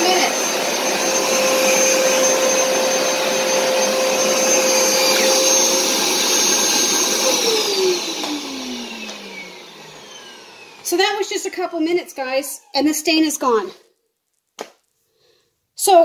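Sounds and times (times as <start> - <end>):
carpet cleaner motor whine: 0.0 - 12.7.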